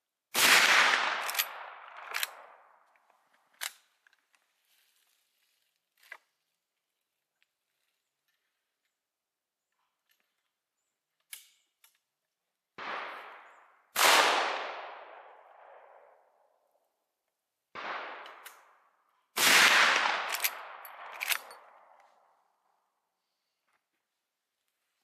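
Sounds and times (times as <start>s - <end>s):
rifle shots with echo: 0.4s - 2.8s, 12.8s - 16.3s, 17.7s - 18.8s, 19.4s - 22.0s
sharp clicks: 20.3s - 22.2s.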